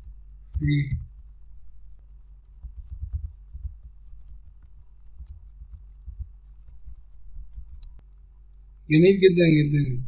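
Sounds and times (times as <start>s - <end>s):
computer keyboard typing: 2.0s - 8.0s.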